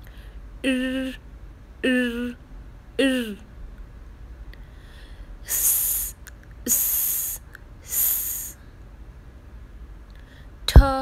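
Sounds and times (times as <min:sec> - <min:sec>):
person making hissing s sound: 0:05.4 - 0:08.6.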